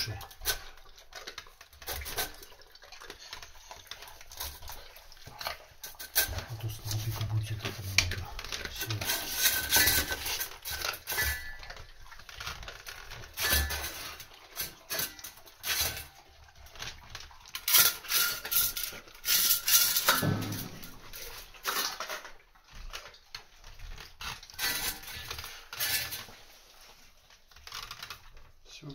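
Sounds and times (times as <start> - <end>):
metal bowls clinking and scraping: 0.0 - 27.8
dogs chewing: 0.3 - 19.2.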